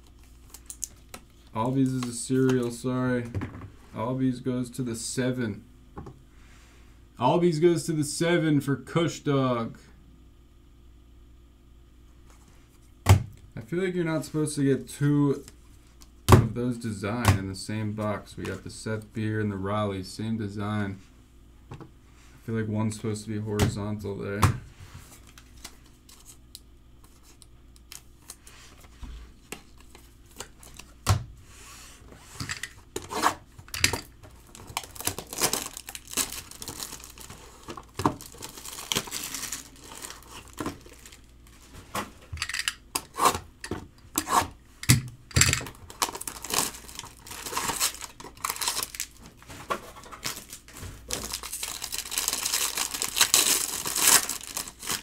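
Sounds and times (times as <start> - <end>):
plastic shrink-wrap crackling: 34.4 - 41.3, 45.6 - 49.3, 50.2 - 55.0.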